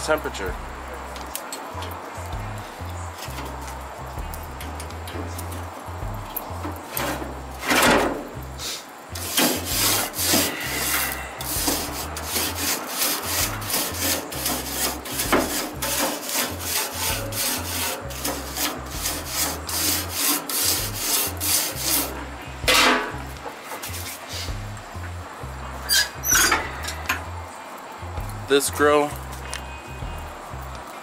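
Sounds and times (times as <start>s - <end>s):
grill brush scraping grates: 8.6s - 24.7s.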